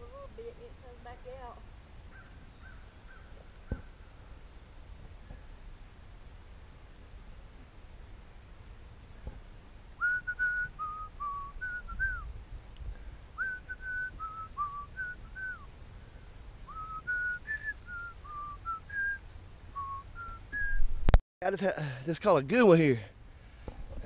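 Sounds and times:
person whistling a tune: 10.0 - 12.2, 13.4 - 15.6, 16.7 - 19.2, 19.8 - 20.8.

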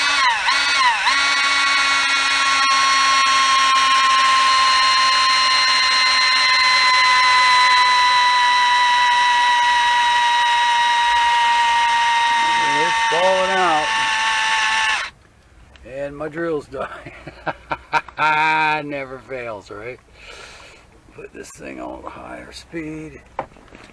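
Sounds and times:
cordless drill whining: 0.0 - 15.1.

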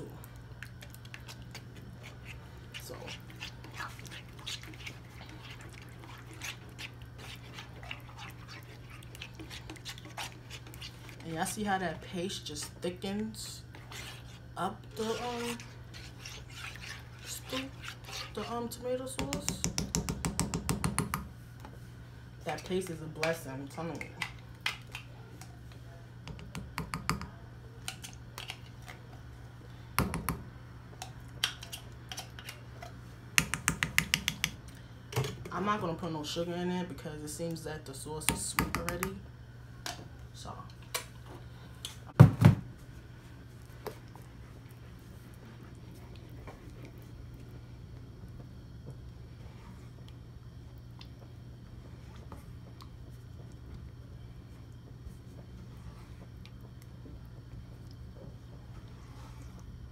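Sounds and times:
steady low hum: 0.0 - 59.9
spoon stirring thick sauce: 0.3 - 20.6.

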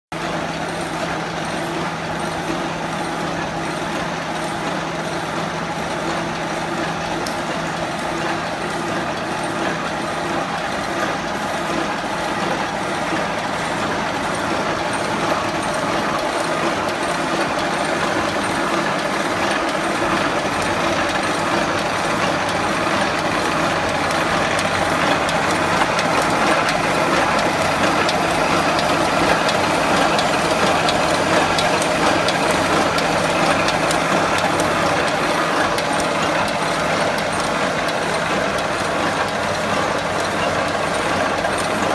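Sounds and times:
welding machine hum and clatter: 0.1 - 41.9.

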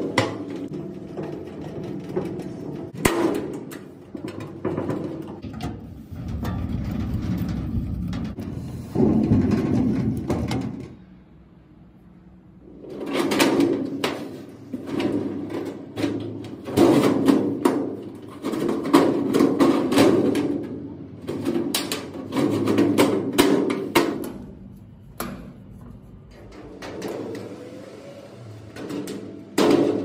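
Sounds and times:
metal shelf scraping: 0.0 - 11.1, 12.6 - 30.0.

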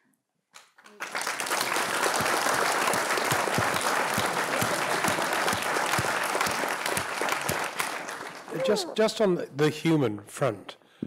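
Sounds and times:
crowd applauding: 0.6 - 9.1.

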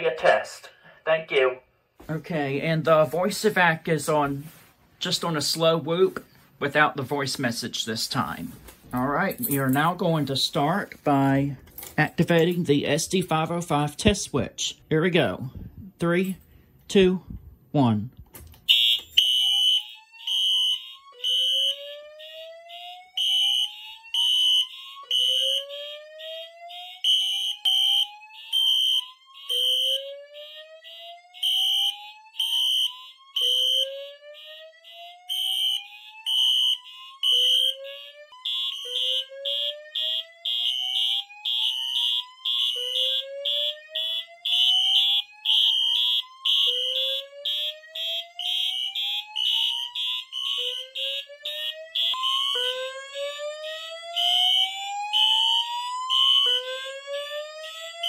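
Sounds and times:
high-pitched pulsing fire alarm horns: 18.6 - 58.0
rising whoop alarm tone: 29.0 - 58.0.

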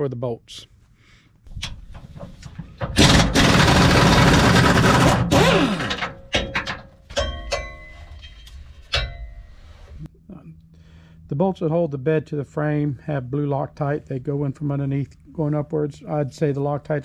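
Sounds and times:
pneumatic impact wrench hammering: 1.5 - 7.7
metal clinks with ringing: 6.4 - 9.6.

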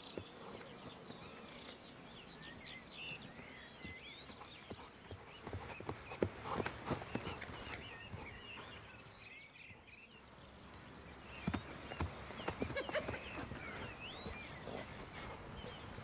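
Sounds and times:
birds chirping: 0.0 - 16.0
horse hooves thudding on grass: 3.2 - 9.0, 11.3 - 16.0.

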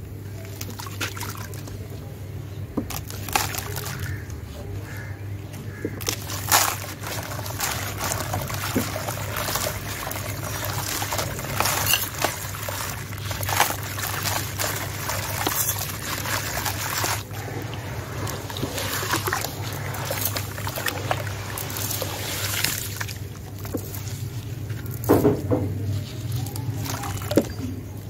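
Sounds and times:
crunches of crumbling cement: 2.8 - 28.0
grit and powder trickling: 5.7 - 28.0.

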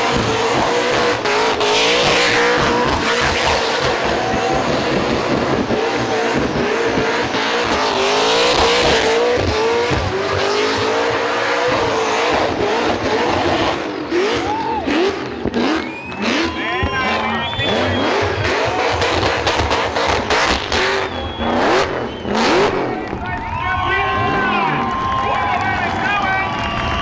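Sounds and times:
car engine at high revs: 0.0 - 27.0.

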